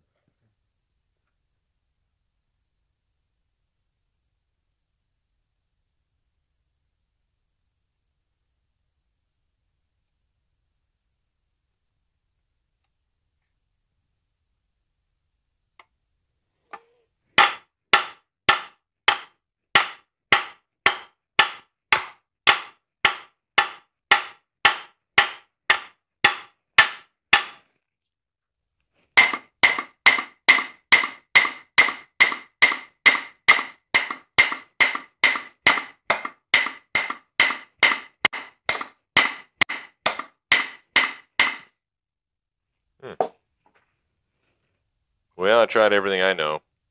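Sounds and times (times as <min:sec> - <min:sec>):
hammer striking metal: 0:17.4 - 0:27.7, 0:29.2 - 0:41.8.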